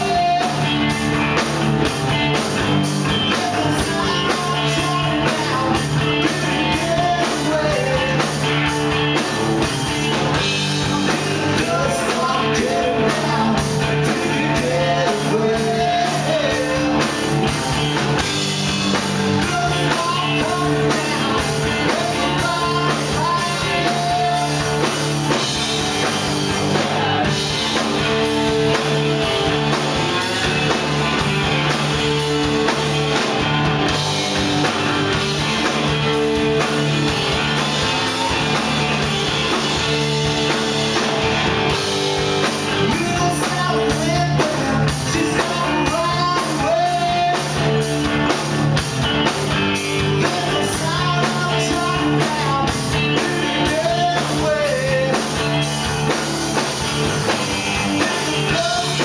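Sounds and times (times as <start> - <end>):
drum kit: 0.0 - 59.0
electric bass: 0.0 - 59.0
electric guitars: 0.0 - 59.0.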